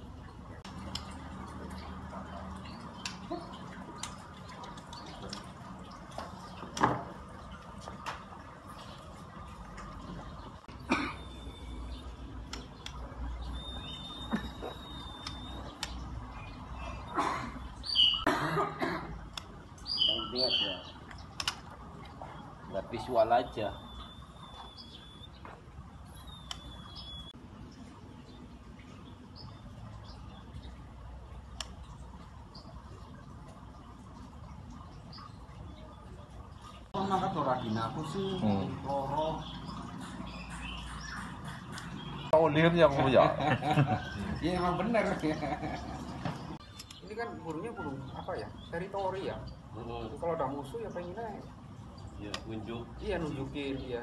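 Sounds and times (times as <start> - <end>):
knocks and clatter of cage and stool: 6.6 - 7.2
bird high whistles: 13.4 - 15.8, 26.2 - 27.4
short high bird chirps: 13.4 - 16.1, 17.8 - 18.3, 19.8 - 21.0, 26.1 - 27.4
sharp clicks: 15.0 - 16.1, 21.1 - 21.7.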